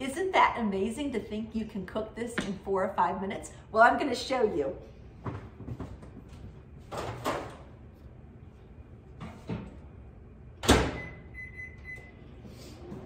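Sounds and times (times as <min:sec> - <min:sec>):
microwave keypad beeps: 0:11.0 - 0:12.2.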